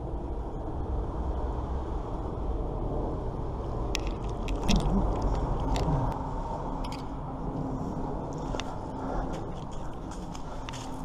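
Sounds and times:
low rumble: 0.0 - 11.0
metallic clicks and clinks: 4.0 - 6.2, 6.8 - 7.1.

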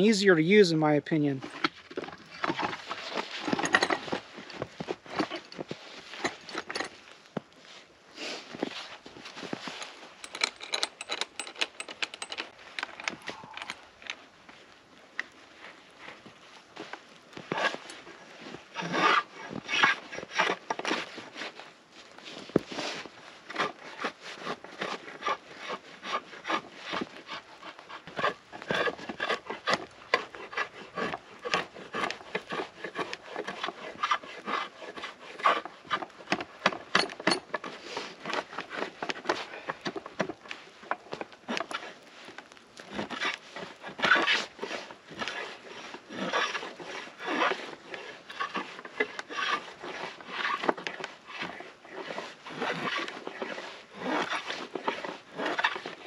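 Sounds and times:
drawknife scraping wood: 1.4 - 7.0, 18.8 - 21.5, 22.6 - 56.0.

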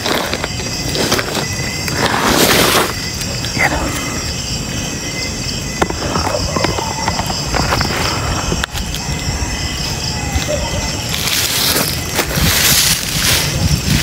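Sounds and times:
night insects trilling: 0.0 - 14.0
loud rustling hiss: 11.1 - 14.0.

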